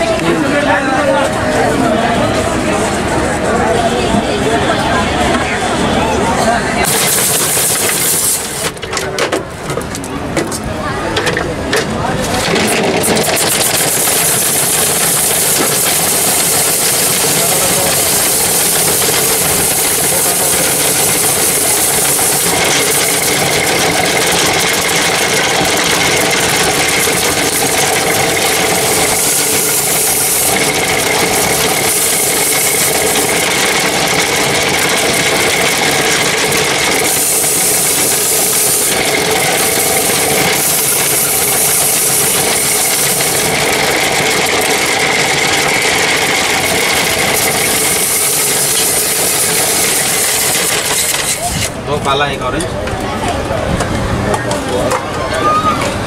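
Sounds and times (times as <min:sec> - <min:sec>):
ice shaver scraping ice: 0:06.8 - 0:09.2, 0:11.9 - 0:51.8.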